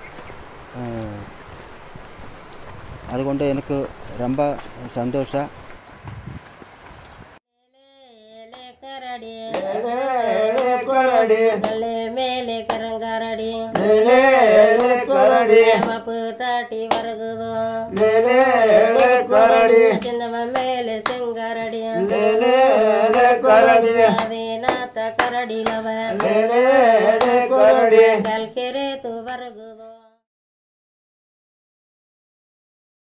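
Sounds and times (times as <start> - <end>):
person singing: 7.7 - 30.2.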